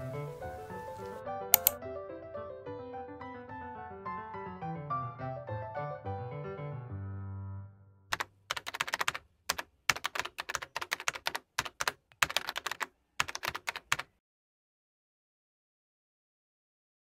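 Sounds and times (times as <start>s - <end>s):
soft piano music: 0.0s - 7.8s
typing on a keyboard: 0.9s - 1.8s, 8.1s - 14.1s.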